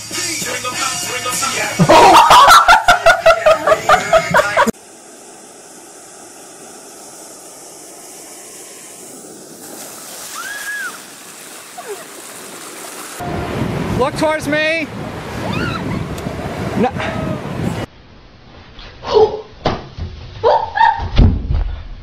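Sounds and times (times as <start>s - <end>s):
music with heavy beat: 0.0s - 2.1s
ocean surf on sandy beach: 1.9s - 17.9s.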